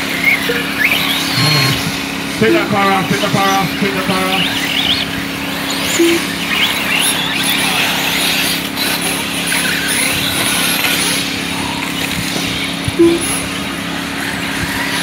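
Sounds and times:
steady low hum: 0:00.0 - 0:14.9
electric motors whining: 0:00.0 - 0:15.0
short beep: 0:05.9 - 0:06.4, 0:13.0 - 0:13.4.

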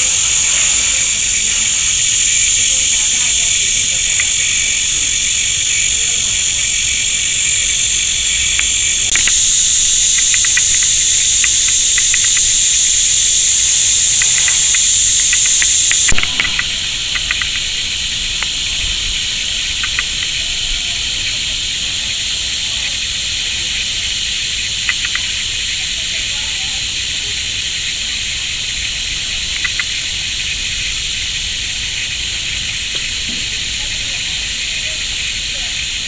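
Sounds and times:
high-pitched insect chorus: 0:00.0 - 0:36.0
faint scattered ticking: 0:07.2 - 0:17.6.

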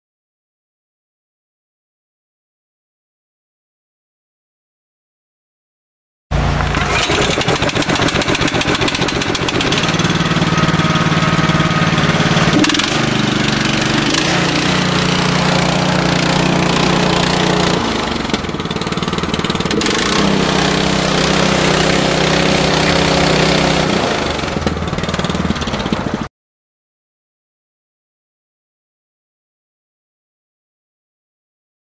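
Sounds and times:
concrete mixer engine running: 0:06.3 - 0:26.3.

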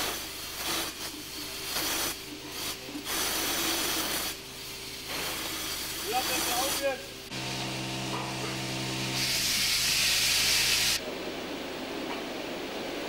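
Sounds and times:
safety valve hissing steam: 0:00.0 - 0:07.3, 0:09.0 - 0:11.0.

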